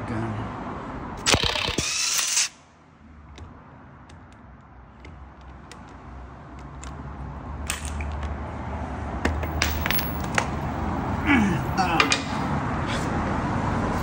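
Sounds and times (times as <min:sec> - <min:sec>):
light clicks and knocks: 0:03.3 - 0:07.0.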